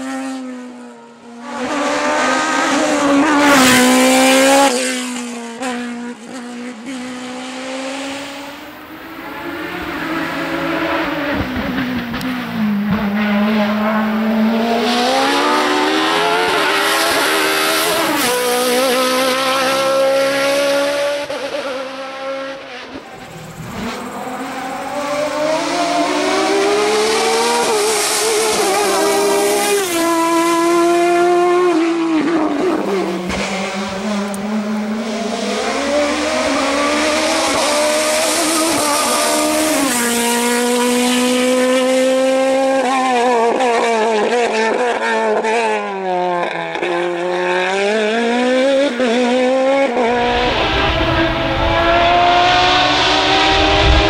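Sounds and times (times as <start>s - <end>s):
race car engines accelerating: 0.0s - 54.0s.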